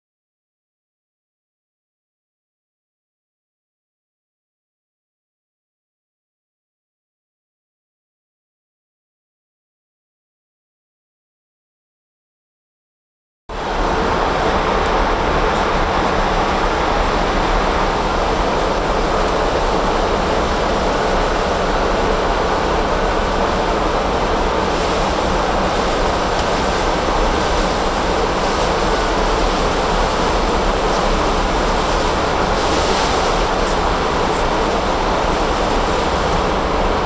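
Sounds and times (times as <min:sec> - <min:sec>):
steady rushing cockpit noise: 0:13.5 - 0:37.0.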